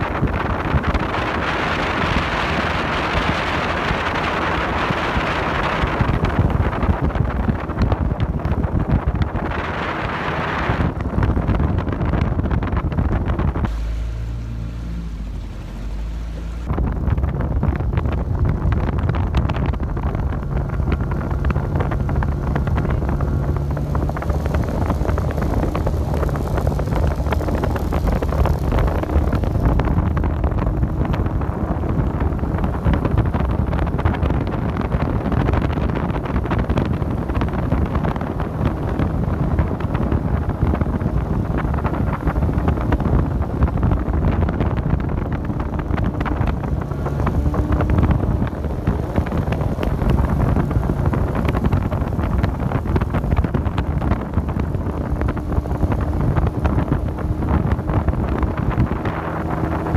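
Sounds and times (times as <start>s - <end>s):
motorboat engine running: 0.0s - 59.9s
wind buffeting microphone: 0.0s - 59.9s
rushing water: 13.6s - 16.8s.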